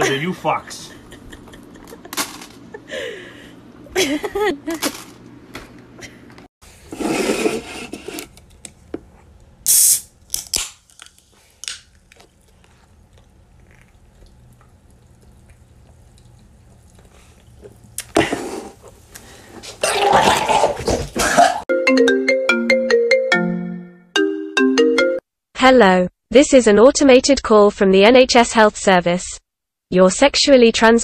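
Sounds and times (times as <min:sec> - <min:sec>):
soda can hissing open: 0:09.6 - 0:10.8
phone ringtone melody: 0:21.7 - 0:25.2.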